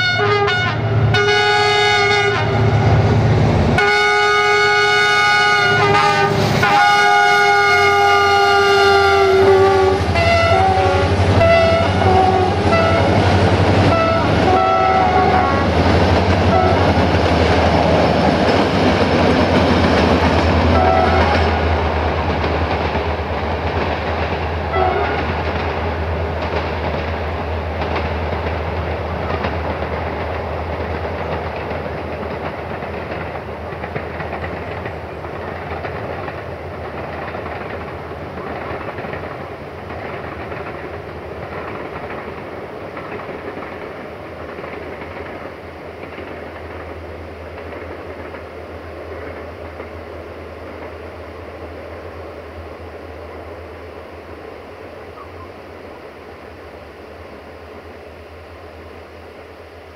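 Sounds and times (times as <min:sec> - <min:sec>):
locomotive air horn: 0:00.0 - 0:03.0, 0:03.8 - 0:13.2, 0:13.8 - 0:15.8, 0:16.5 - 0:16.9, 0:20.7 - 0:21.7, 0:24.7 - 0:25.3
locomotive engine rumble: 0:00.0 - 0:53.7
train wheels on rails: 0:00.0 - 0:59.9.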